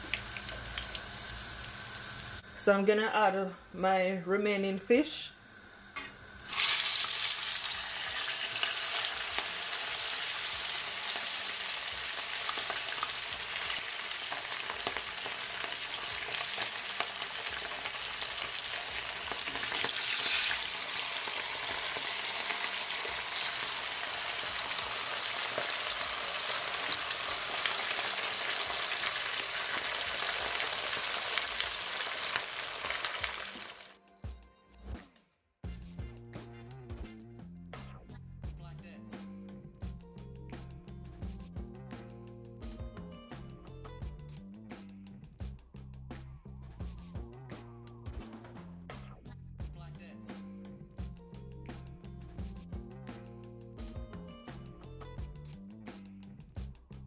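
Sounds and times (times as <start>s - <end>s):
fish sizzling in hot oil: 0.0s - 2.4s, 6.3s - 33.9s.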